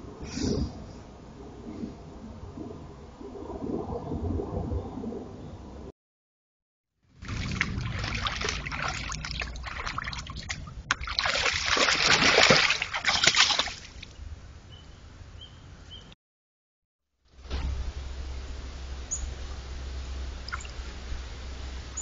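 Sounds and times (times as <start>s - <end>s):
deer splashing through water: 7.2s - 14.1s.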